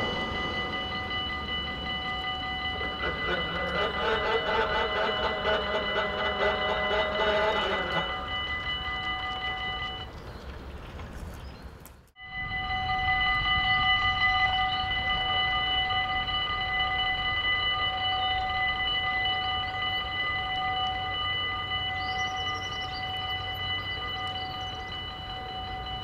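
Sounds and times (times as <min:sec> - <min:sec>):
level-crossing bells ringing: 0:00.0 - 0:10.4, 0:12.2 - 0:26.0
passing train rumble: 0:00.0 - 0:26.0.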